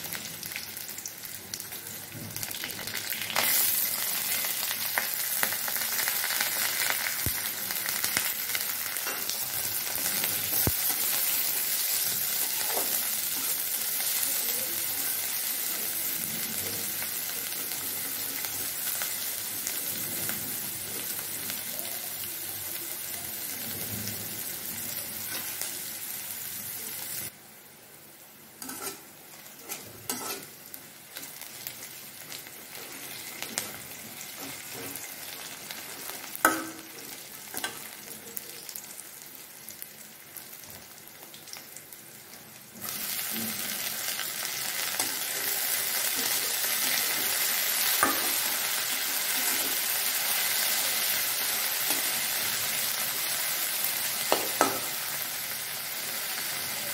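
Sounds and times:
loud frying sizzle: 0.0 - 56.9
vegetables sizzling in oil: 0.0 - 56.9
metal spatula scraping pan: 28.6 - 30.6.

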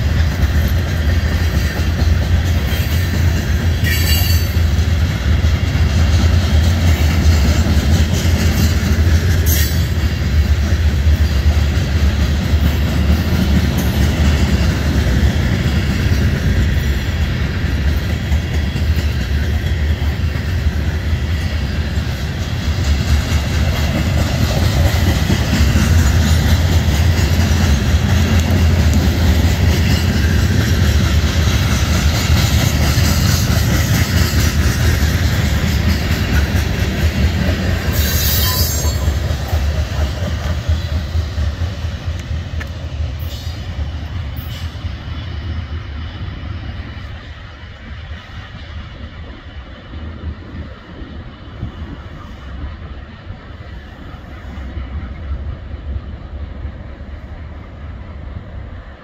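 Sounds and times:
freight train wheels on rails: 0.0 - 59.0.

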